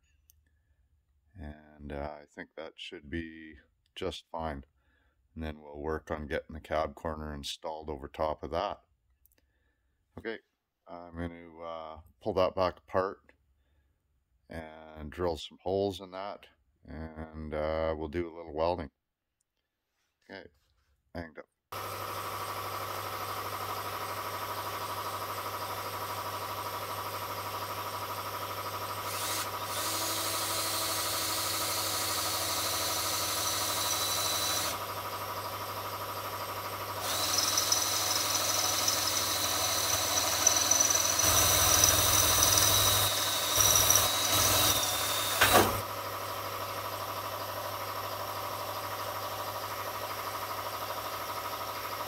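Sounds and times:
steady shop hum: 21.7s - 52.0s
power drill boring into metal: 28.5s - 35.0s, 36.9s - 45.9s.

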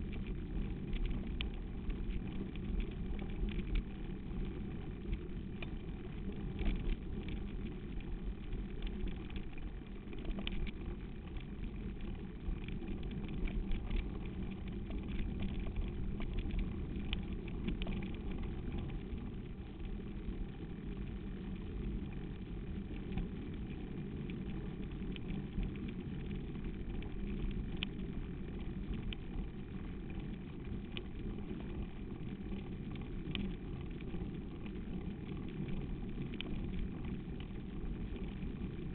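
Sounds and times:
rattling clicks of bike: 0.0s - 19.4s.

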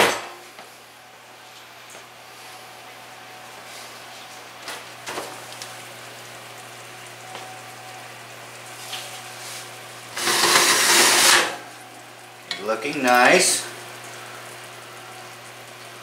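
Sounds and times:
metal oven rack scraping: 10.2s - 11.6s.

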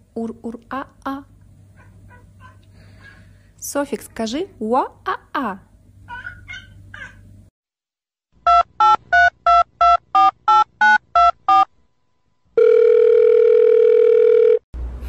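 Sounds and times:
telephone line tone: 12.6s - 14.6s.

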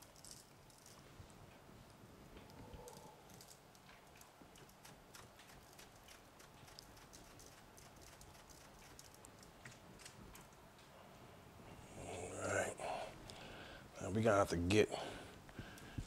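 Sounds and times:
seasoning shaker ticks: 2.9s - 10.6s.

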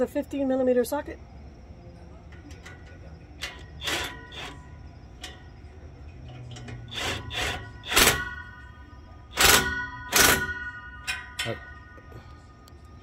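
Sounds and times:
impact wrench hammering: 6.5s - 8.7s, 9.3s - 11.8s.

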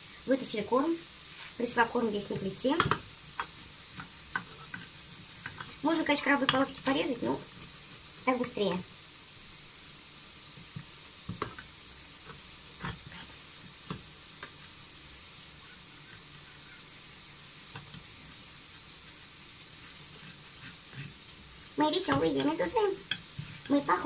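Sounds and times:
faint sizzling hiss: 0.0s - 24.0s
grater scraping: 19.9s - 21.2s.

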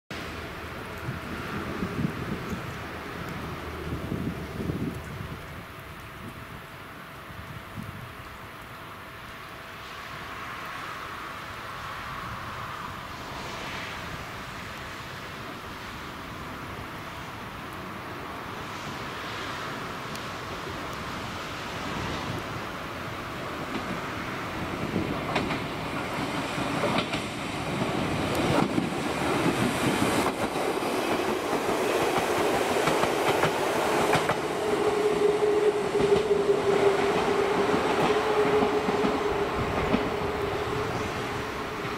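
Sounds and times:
electric train passing: 0.1s - 41.9s
steady train whine: 0.1s - 41.9s
wheels clacking over rail joints: 22.3s - 41.9s.

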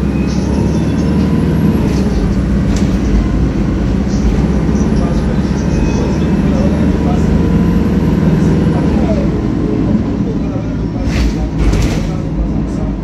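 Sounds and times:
bus engine droning: 0.0s - 13.0s.

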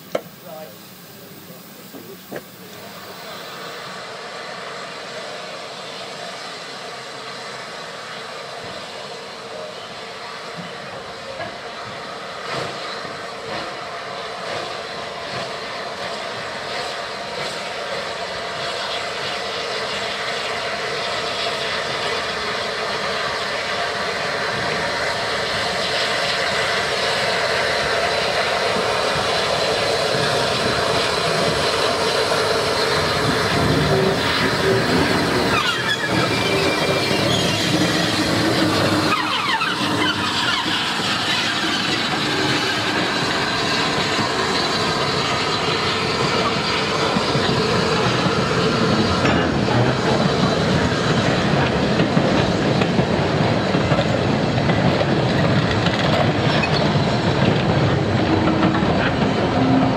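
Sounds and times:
steam locomotive rushing past: 0.0s - 59.9s.

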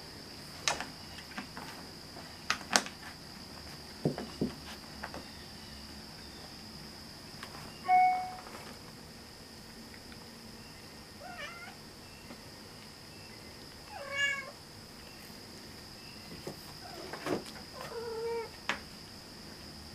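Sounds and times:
faint high-pitched tone: 7.7s - 8.6s
cat meowing: 11.2s - 11.8s, 13.9s - 14.6s.

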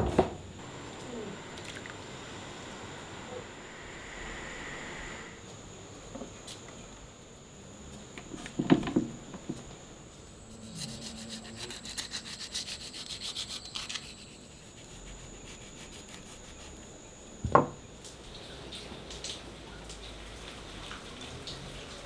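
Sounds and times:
quick scraping strokes: 10.5s - 16.8s.

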